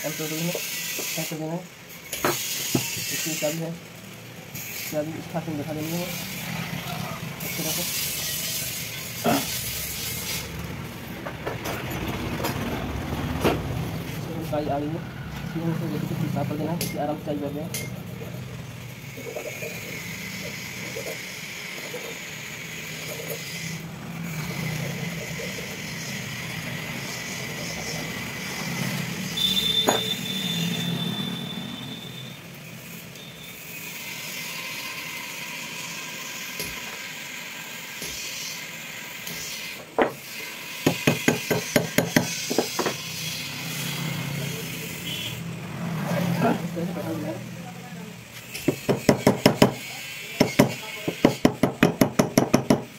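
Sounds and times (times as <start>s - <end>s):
sharp metallic taps: 50.4s - 52.9s.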